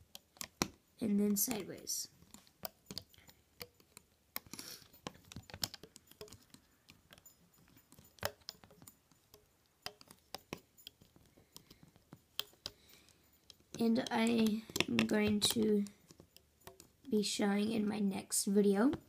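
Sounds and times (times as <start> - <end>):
metal hook tapping plastic pegs: 0.0 - 17.8, 18.7 - 19.0.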